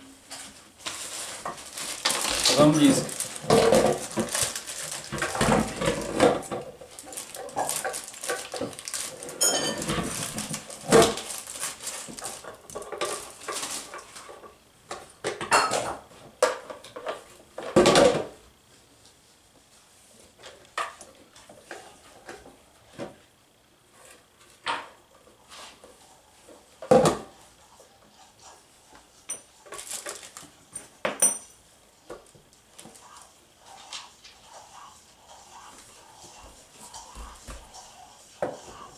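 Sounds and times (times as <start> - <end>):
plastic toy parts clattering: 1.0 - 6.4.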